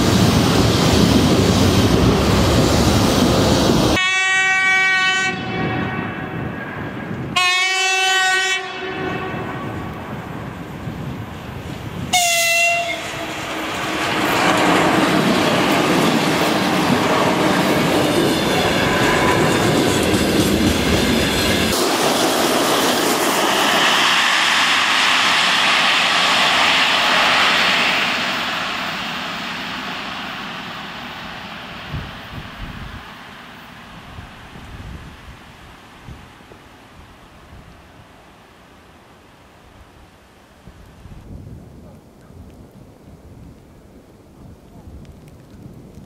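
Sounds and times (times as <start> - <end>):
locomotive horn blast: 4.0 - 6.5, 7.4 - 9.9, 12.1 - 13.3.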